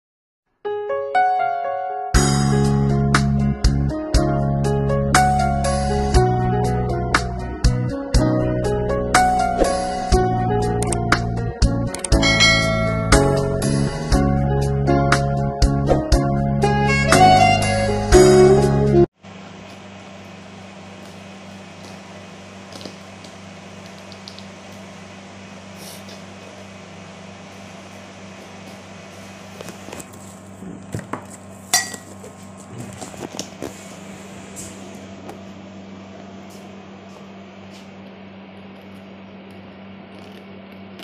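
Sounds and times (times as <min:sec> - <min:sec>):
steady low hum: 0:02.2 - 0:16.9, 0:19.2 - 0:41.0.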